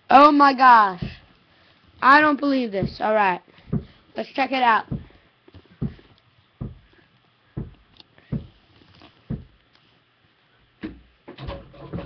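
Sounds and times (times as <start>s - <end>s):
faint room noise: 0.0s - 12.0s
dull thumps: 0.9s - 1.4s, 2.0s - 4.0s, 4.6s - 7.0s, 7.6s - 8.6s, 9.3s - 9.6s.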